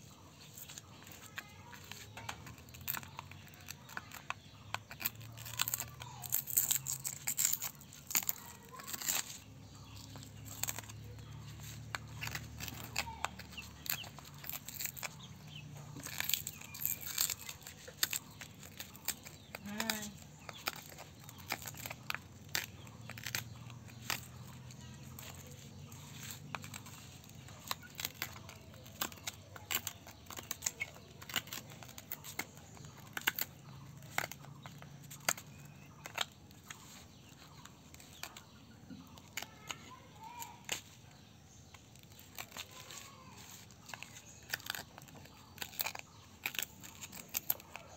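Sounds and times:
glass crackling and clicking: 0:01.4 - 0:25.5, 0:26.3 - 0:36.4.

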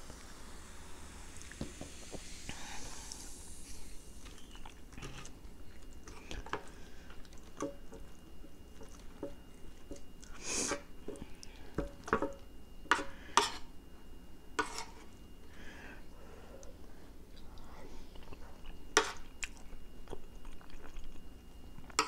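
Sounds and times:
chewing and wet mouth sounds: 0:04.2 - 0:10.4, 0:16.6 - 0:22.0
metal spoon scraping a plate: 0:14.6 - 0:15.1.

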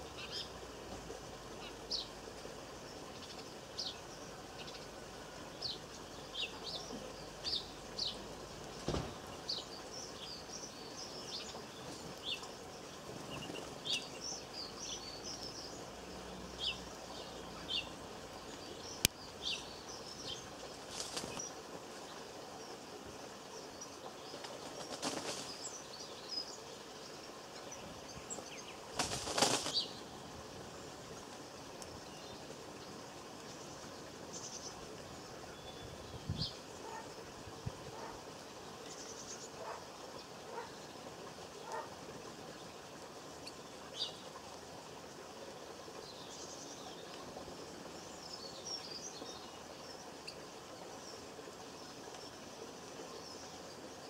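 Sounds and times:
songbirds chirping: 0:00.0 - 0:54.0
bird wingbeats: 0:20.7 - 0:21.5, 0:24.3 - 0:25.7, 0:28.9 - 0:30.0.

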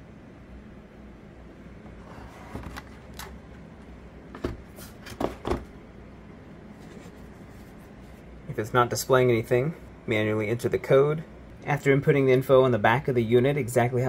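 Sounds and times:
cardboard packaging knocks and clicks: 0:04.3 - 0:05.7.

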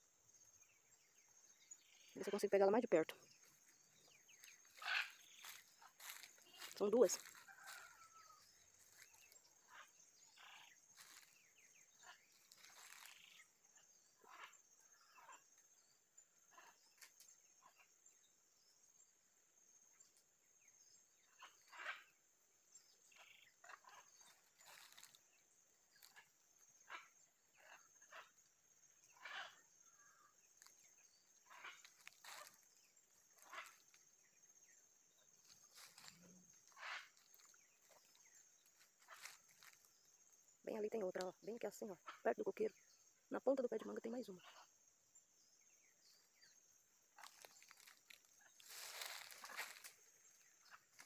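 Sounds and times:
faint animal calls: 0:01.8 - 0:15.6, 0:23.0 - 0:34.2, 0:35.4 - 0:39.9, 0:47.1 - 0:51.0.

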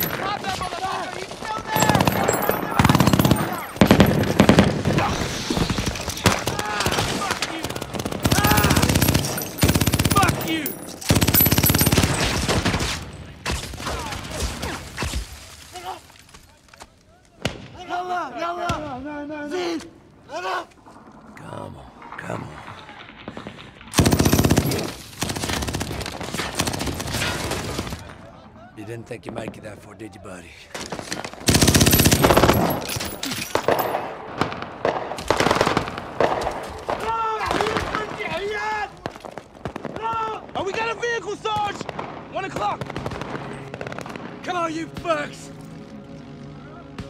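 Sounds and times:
machine gun automatic fire: 0:01.7 - 0:13.1, 0:23.0 - 0:28.0, 0:30.9 - 0:34.1
automatic gunfire burst: 0:23.9 - 0:28.0, 0:31.4 - 0:32.9.

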